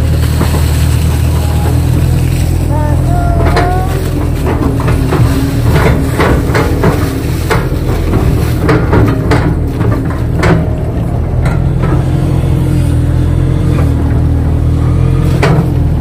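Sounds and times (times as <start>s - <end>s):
excavator diesel engine running: 0.0s - 16.0s
excavator bucket knocks: 3.4s - 12.2s.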